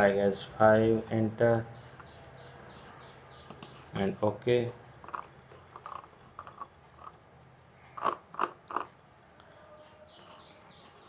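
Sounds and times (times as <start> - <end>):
sharp crunching clicks: 5.0 - 7.2, 7.9 - 9.0.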